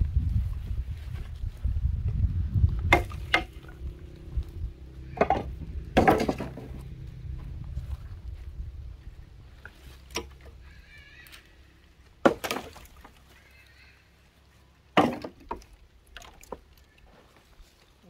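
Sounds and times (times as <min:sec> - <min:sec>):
logs knocking and clattering: 0:02.9 - 0:03.9, 0:05.0 - 0:06.9, 0:15.0 - 0:16.7.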